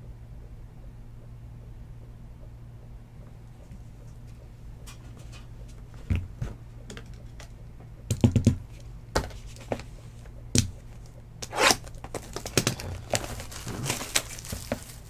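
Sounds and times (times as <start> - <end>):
scraping rustle: 11.5 - 15.0.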